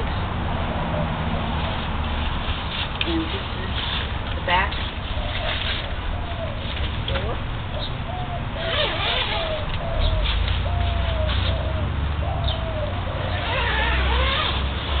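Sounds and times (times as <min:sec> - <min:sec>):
bird calling: 0:04.5 - 0:15.0
tent fabric rustling: 0:13.3 - 0:15.0.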